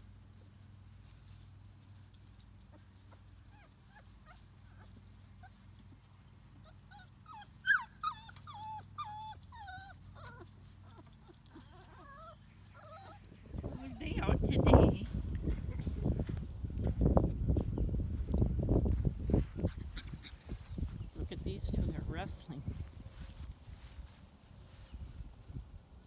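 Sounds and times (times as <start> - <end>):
puppies whimpering: 6.6 - 14.2.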